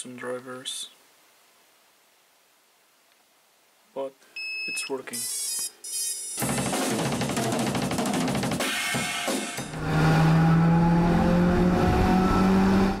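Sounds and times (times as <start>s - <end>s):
drum kit beat with cymbals: 6.4s - 9.8s
loud sustained notes: 9.7s - 13.0s.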